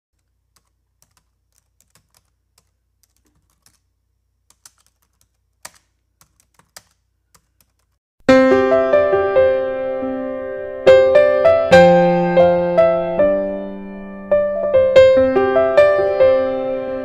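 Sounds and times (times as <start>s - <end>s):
computer keyboard key clicks: 0.2s - 3.8s, 4.5s - 8.0s.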